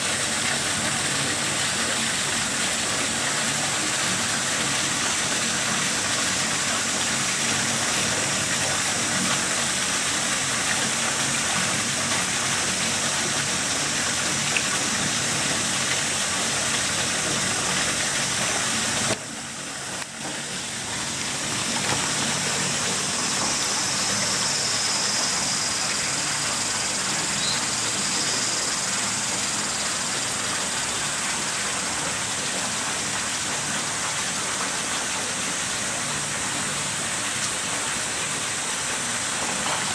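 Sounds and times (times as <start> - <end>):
running water rushing: 0.0 - 39.9.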